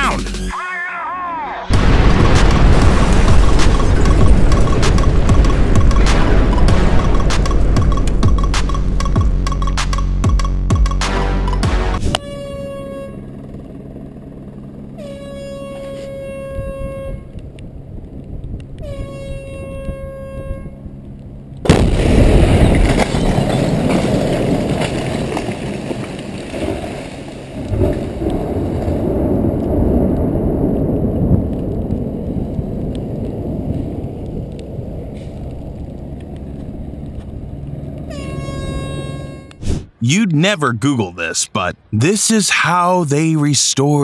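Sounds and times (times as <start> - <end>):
loud explosive bang: 1.7 - 7.8, 21.7 - 23.7
air horn blasts: 11.1 - 13.3, 15.0 - 17.4, 18.8 - 20.8, 38.1 - 39.6.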